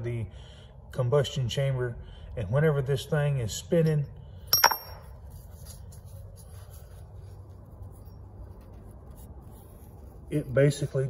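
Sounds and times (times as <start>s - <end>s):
metallic clink ringing: 4.5s - 5.3s.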